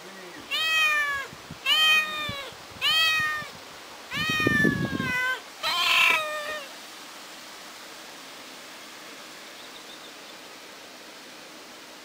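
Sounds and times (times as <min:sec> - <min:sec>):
kitten meowing: 0:00.5 - 0:03.5, 0:04.1 - 0:06.7.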